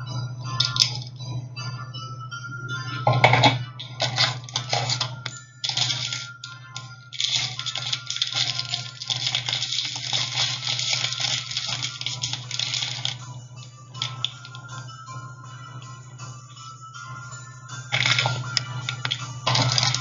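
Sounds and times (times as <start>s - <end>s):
background music: 0.0s - 20.0s
plastic pieces clicking: 0.6s - 1.2s, 3.2s - 13.2s, 14.0s - 14.8s, 17.9s - 20.0s
plastic packaging crinkling: 4.0s - 13.2s, 14.0s - 14.8s, 17.9s - 20.0s.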